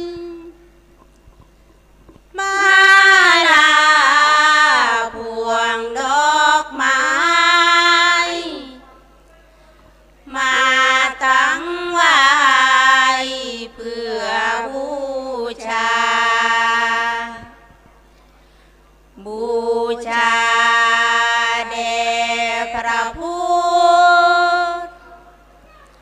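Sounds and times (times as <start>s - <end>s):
women chanting unaccompanied: 2.4s - 8.8s, 10.3s - 17.6s, 19.2s - 25.9s.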